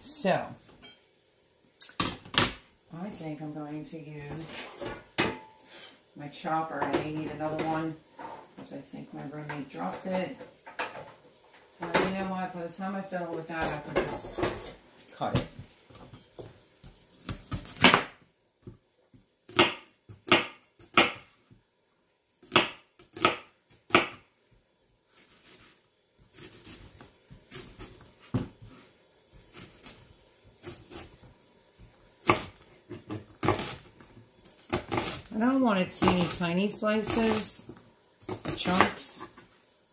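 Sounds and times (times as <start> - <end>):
knife cutting onion on cutting board: 19.5 - 21.3, 22.4 - 24.2, 25.2 - 39.4.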